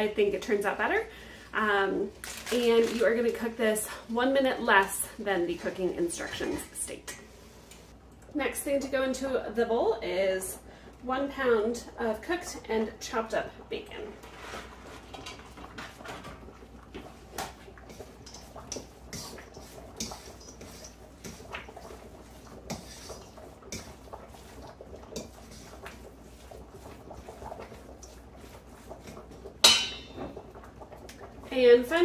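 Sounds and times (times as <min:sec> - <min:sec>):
hand mixing food in a steel bowl: 0:17.0 - 0:30.2.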